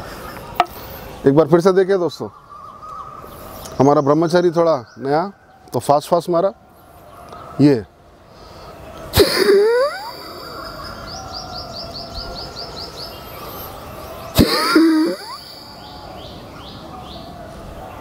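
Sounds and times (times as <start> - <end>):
high bird chirps: 9.2 - 17.3.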